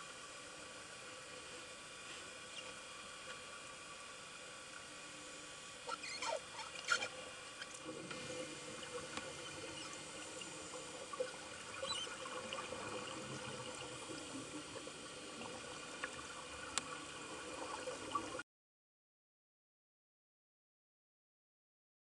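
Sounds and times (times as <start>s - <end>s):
water trickling or bubbles: 5.4s - 18.4s
underwater hiss: 7.3s - 16.0s.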